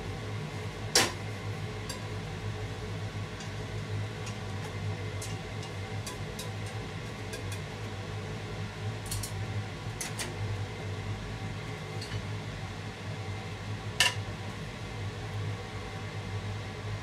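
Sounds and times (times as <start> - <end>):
chopsticks tapping frying pan: 5.2 - 7.7.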